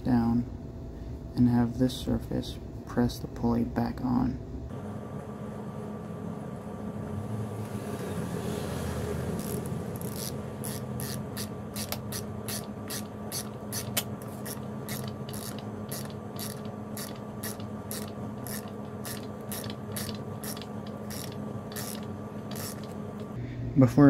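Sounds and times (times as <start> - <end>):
ratchet wrench clicking: 9.4 - 23.0.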